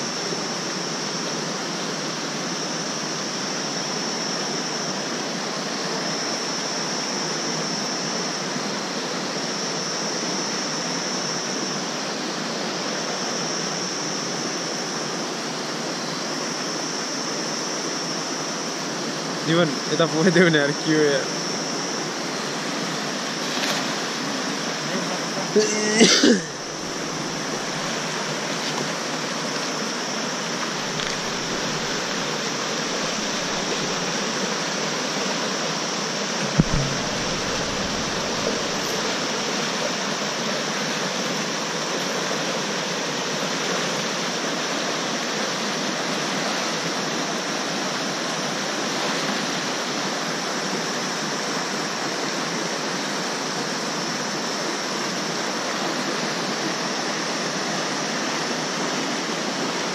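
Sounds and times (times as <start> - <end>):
river rushing over rocks: 25.6 - 49.7
low thump: 36.4 - 39.4.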